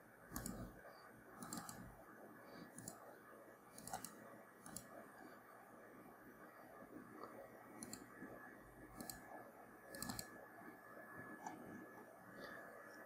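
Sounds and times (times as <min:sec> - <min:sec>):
faint computer mouse clicks: 0:01.4 - 0:01.8, 0:02.7 - 0:03.0, 0:03.8 - 0:04.9, 0:07.2 - 0:08.1, 0:09.0 - 0:09.2, 0:09.9 - 0:10.3.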